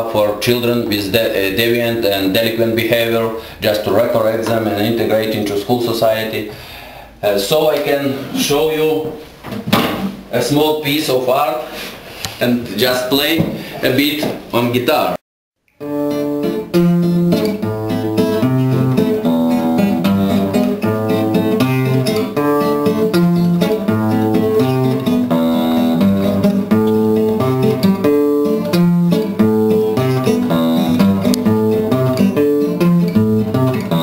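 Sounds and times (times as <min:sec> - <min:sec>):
acoustic guitar piece: 0:15.8 - 0:34.0.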